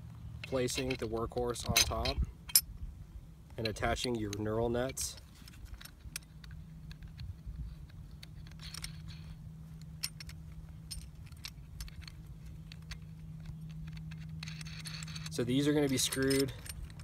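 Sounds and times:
steady low hum: 0.0s - 17.0s
hardware clicks and rattles: 3.6s - 17.0s.

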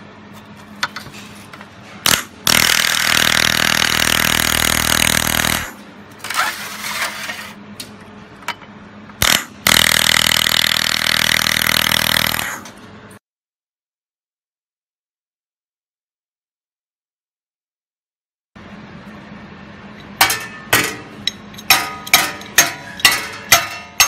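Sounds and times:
steady low hum: 7.2s - 13.2s, 18.6s - 24.0s.

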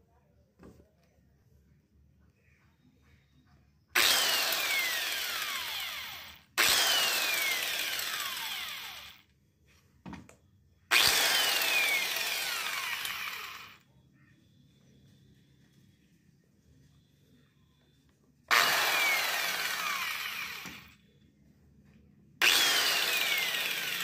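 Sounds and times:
angle grinder whine: 4.0s - 9.2s, 10.9s - 13.8s, 18.5s - 21.0s, 22.4s - 24.0s.

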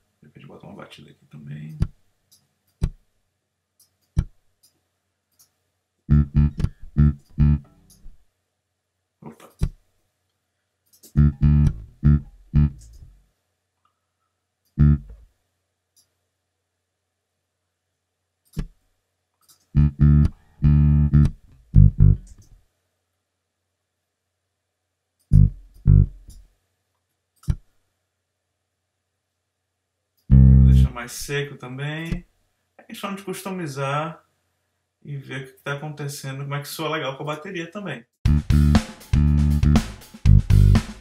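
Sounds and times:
plucked electric bass notes: 6.1s - 7.9s, 11.1s - 13.2s, 14.8s - 15.2s, 19.8s - 22.4s, 25.3s - 26.4s, 30.3s - 31.0s, 38.3s - 41.0s.

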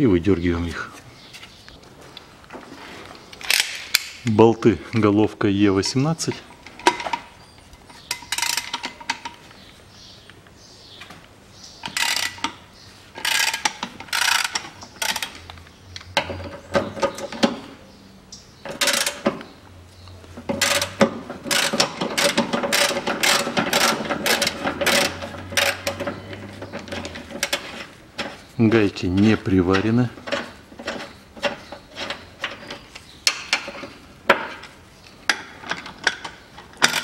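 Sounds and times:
ratchet wrench clicking: 8.2s - 8.9s, 11.9s - 12.6s, 13.2s - 15.4s, 20.6s - 26.0s.

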